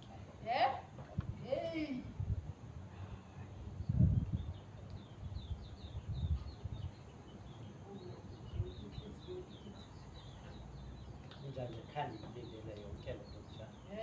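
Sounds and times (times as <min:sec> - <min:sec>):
low rumbling on microphone: 0:01.1 - 0:07.2
small bird chirping: 0:03.3 - 0:14.0.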